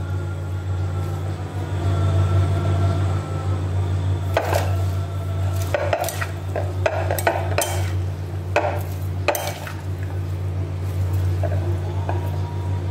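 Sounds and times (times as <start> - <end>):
steady low hum: 0.0 - 12.9
salad leaves rustling in bowl: 4.3 - 12.9.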